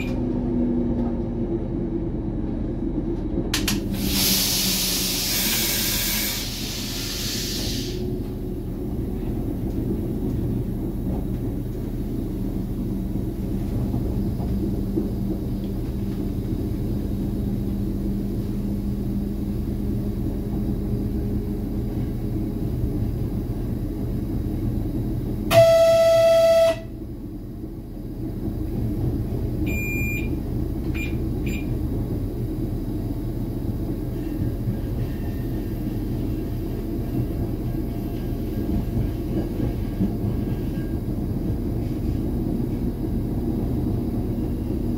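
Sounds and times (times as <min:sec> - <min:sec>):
diesel railcar rumble: 0:00.0 - 0:44.9
train horn blast: 0:25.5 - 0:27.0.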